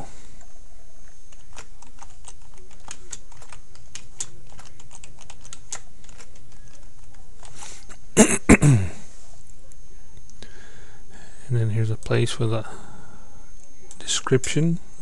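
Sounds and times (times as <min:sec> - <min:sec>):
steady low hum: 0:00.0 - 0:15.0
keyboard typing clicks: 0:01.3 - 0:07.2.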